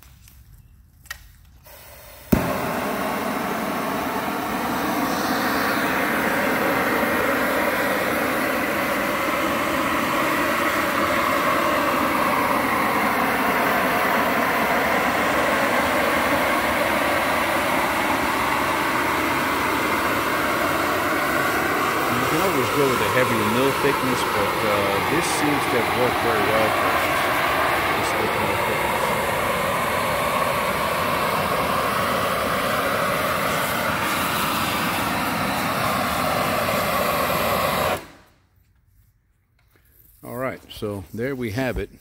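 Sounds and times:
heat gun lighting pop: 1.0 - 6.2
loud rush of flame: 1.6 - 38.3.

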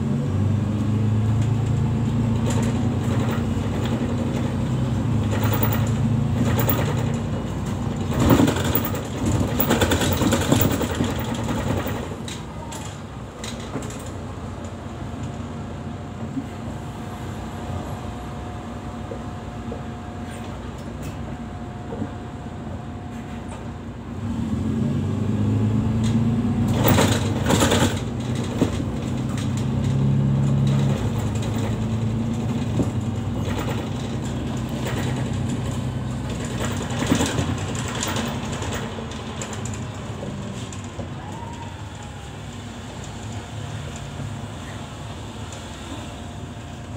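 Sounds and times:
bus engine accelerating: 0.0 - 46.9
bus body knocks and rattles: 1.4 - 15.5, 26.1 - 41.7.

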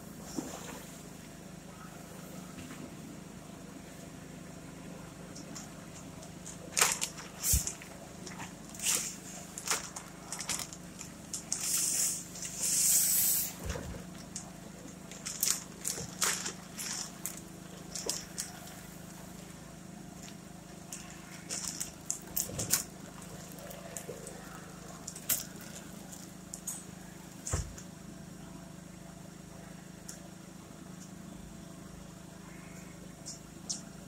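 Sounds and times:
steady low hum: 0.0 - 34.0
plastic sheeting crinkling: 6.4 - 19.6, 20.2 - 26.8.

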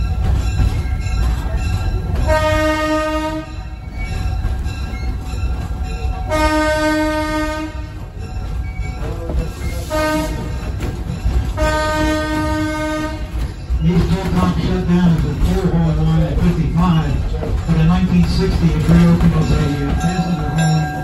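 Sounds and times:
train wheels rumbling on track: 0.0 - 21.0
train horn: 2.2 - 3.7, 6.3 - 8.0, 9.8 - 10.6, 11.6 - 13.4.

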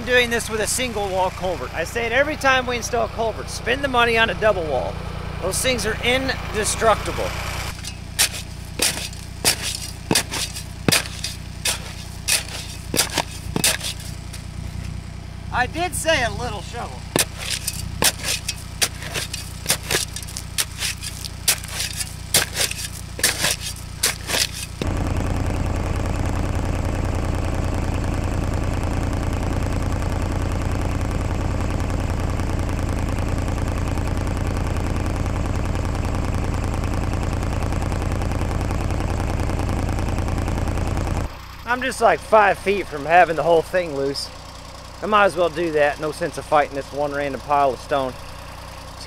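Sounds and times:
tractor diesel engine running: 0.0 - 49.0
steel scraping on rock: 7.7 - 14.9, 17.1 - 24.8.

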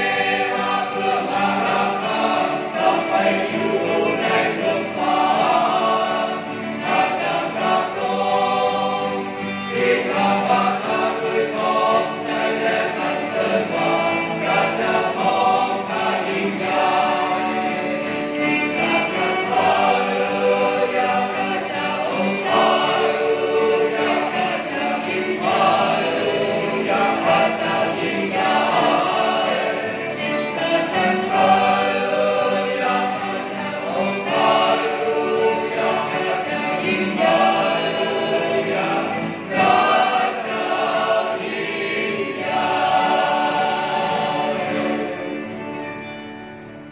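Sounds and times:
choir singing a hymn: 0.0 - 46.9
strummed acoustic guitars: 0.0 - 46.9
violin: 0.0 - 46.9.

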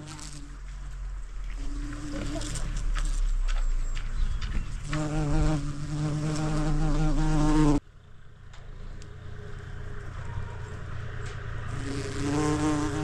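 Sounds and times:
fly buzzing: 0.0 - 0.6, 1.5 - 3.4, 4.8 - 7.8, 11.7 - 13.0.

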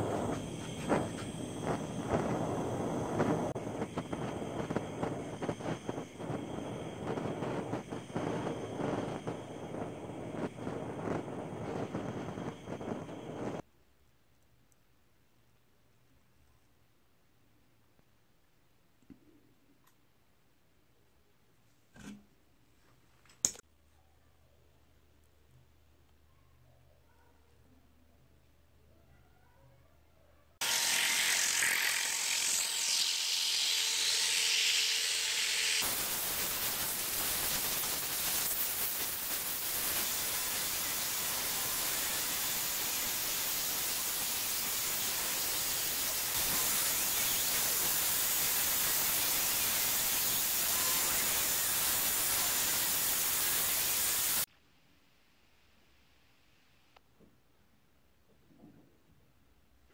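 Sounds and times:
loud hissing noise: 0.0 - 13.6, 30.6 - 54.5.

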